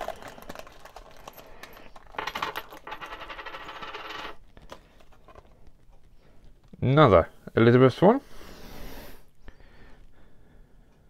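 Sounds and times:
foil pack clicks: 0:00.0 - 0:02.0
coins ringing and rattling on table: 0:01.2 - 0:04.4.

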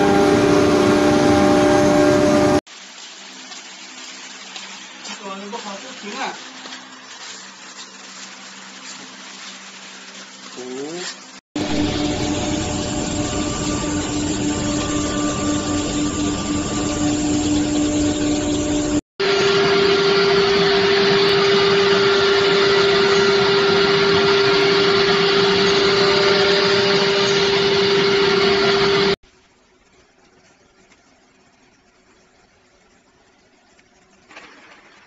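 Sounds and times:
machine with higher whine: 0:00.0 - 0:02.6, 0:11.6 - 0:29.2.

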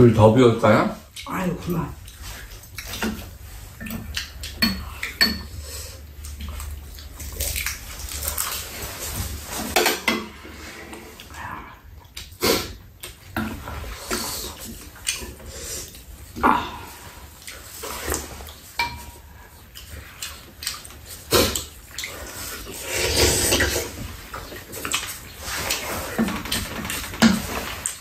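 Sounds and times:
chewing: 0:01.0 - 0:28.0
utensils clinking against bowls: 0:03.8 - 0:05.7, 0:18.7 - 0:19.5.

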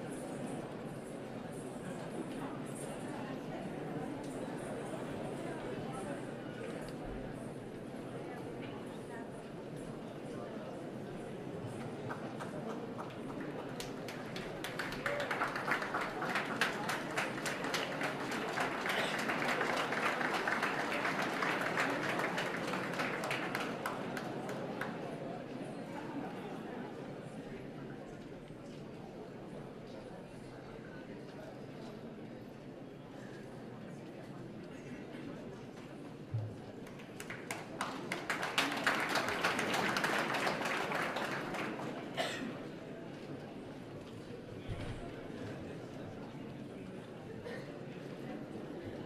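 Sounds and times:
audience applauding: 0:12.1 - 0:25.0, 0:36.9 - 0:42.2.

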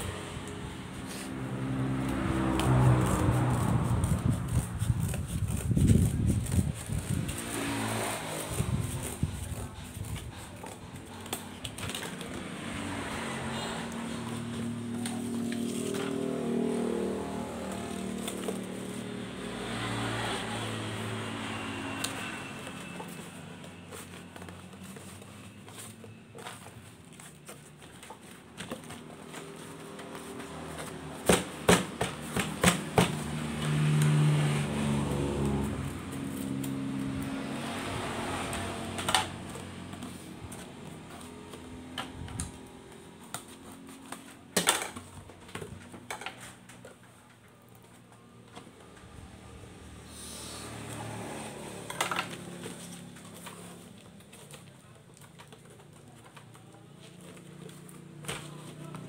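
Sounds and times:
scissors cutting cardboard: 0:00.1 - 0:46.9
packing tape rasping: 0:02.0 - 0:12.5, 0:17.5 - 0:19.2
knocks and taps on cardboard box: 0:30.1 - 0:33.6.

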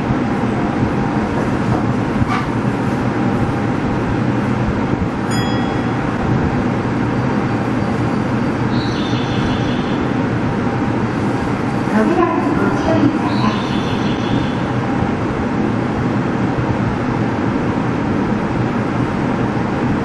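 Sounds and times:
subway train humming: 0:00.0 - 0:20.0
brief high tones: 0:05.3 - 0:06.2.

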